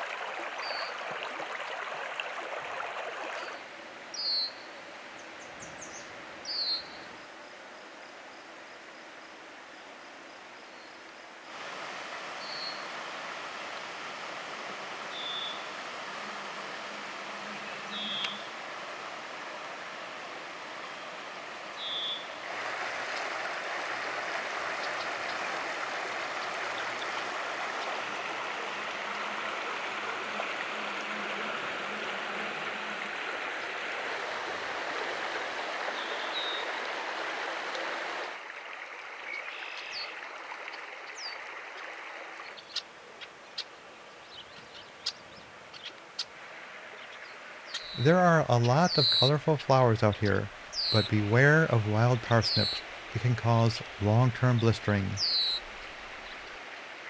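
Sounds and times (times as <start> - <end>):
water rushing over gravel: 0.0 - 3.7, 11.5 - 42.6, 46.2 - 57.0
high bird chirps: 48.9 - 49.3, 50.7 - 51.1, 55.2 - 55.6.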